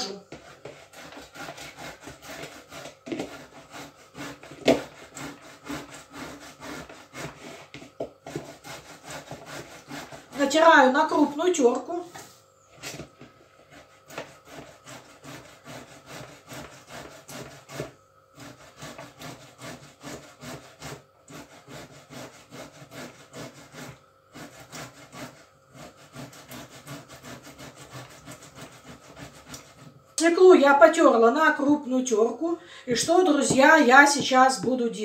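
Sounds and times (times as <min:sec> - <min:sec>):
grating on metal box grater: 0:00.0 - 0:10.9, 0:13.7 - 0:29.9.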